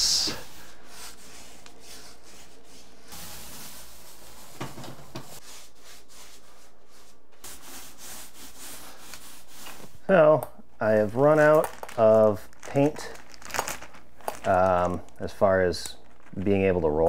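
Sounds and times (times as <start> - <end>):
paintbrush rubbing on wall: 0.0 - 10.1
paint roller rolling on wall: 0.2 - 10.1.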